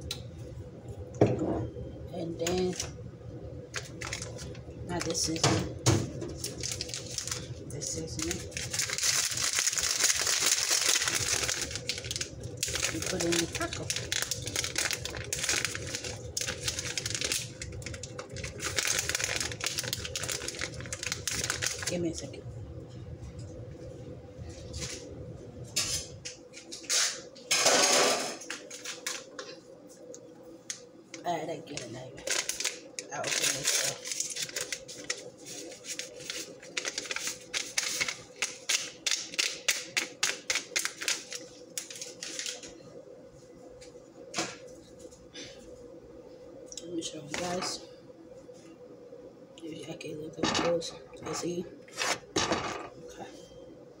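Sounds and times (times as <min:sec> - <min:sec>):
packet crinkling: 0:03.7 - 0:05.4, 0:06.1 - 0:22.2, 0:28.5 - 0:29.6, 0:30.7 - 0:42.8.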